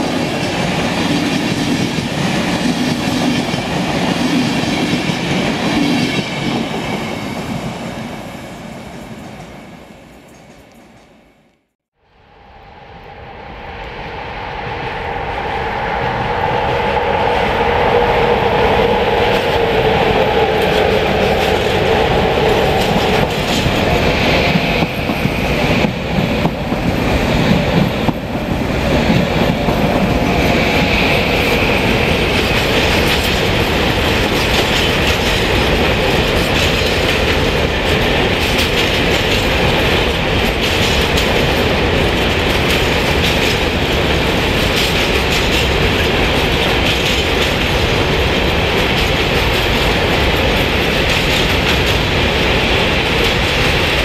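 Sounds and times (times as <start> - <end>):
electric train passing: 0.0 - 54.0
freight train wheel clatter: 17.2 - 54.0.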